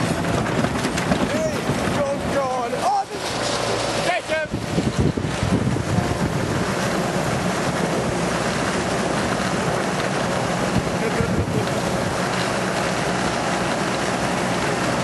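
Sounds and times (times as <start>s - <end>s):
lawnmower running on gravel: 0.0s - 15.0s
wind buffeting microphone: 0.0s - 15.0s.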